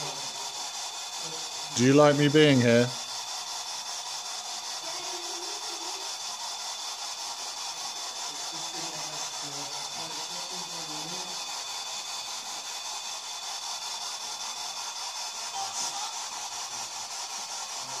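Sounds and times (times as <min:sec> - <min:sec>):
room hiss: 0:00.0 - 0:18.0
thin high steady tone: 0:00.0 - 0:18.0.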